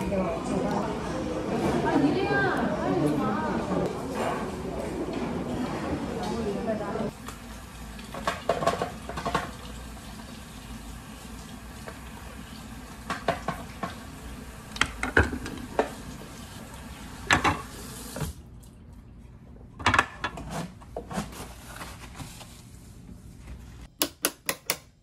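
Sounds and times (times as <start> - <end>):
tap water running into sink: 7.2 - 18.4.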